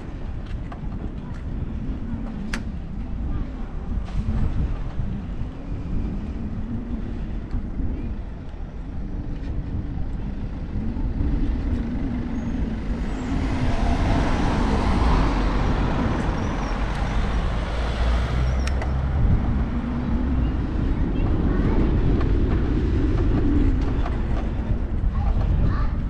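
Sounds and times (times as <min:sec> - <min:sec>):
road noise: 0:00.0 - 0:26.0
wind on microphone: 0:00.0 - 0:26.0
car passing: 0:12.8 - 0:20.8.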